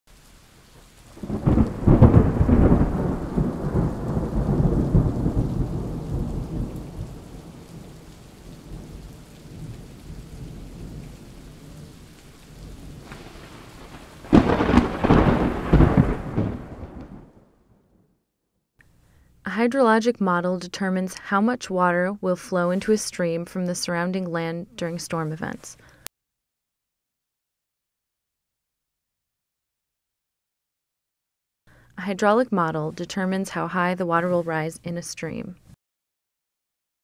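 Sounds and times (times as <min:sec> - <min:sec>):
steady rain: 0:00.1 - 0:17.4
rolling thunderclap: 0:01.1 - 0:18.0.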